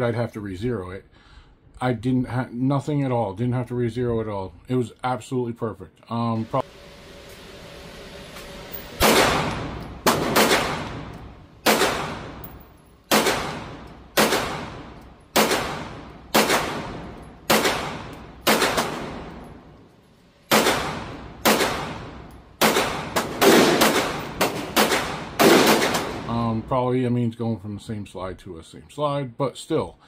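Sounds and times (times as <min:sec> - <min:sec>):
pistol shots echoing indoors: 0:09.0 - 0:19.7, 0:20.4 - 0:26.3.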